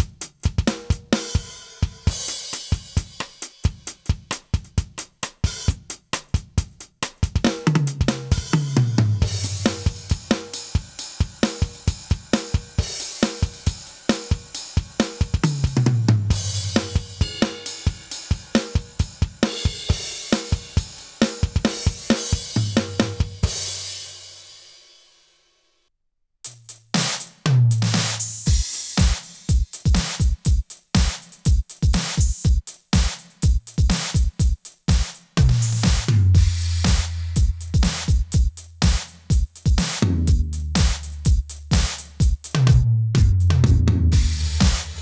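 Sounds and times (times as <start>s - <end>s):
electronic drum kit groove: 0.0s - 24.2s, 26.4s - 45.0s.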